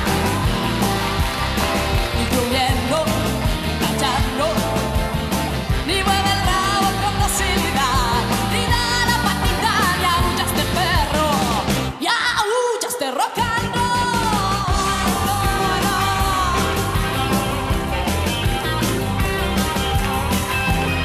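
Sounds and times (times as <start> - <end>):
band with electric guitar: 0.0 - 12.0, 13.4 - 21.0
woman singing rock and roll: 2.0 - 17.8.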